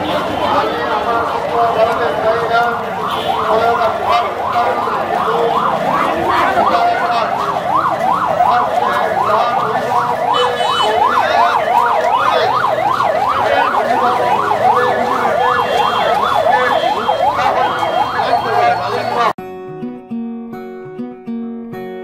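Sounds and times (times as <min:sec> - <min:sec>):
street crowd noise: 0:00.0 - 0:19.4
electronic siren sweeping: 0:03.0 - 0:19.3.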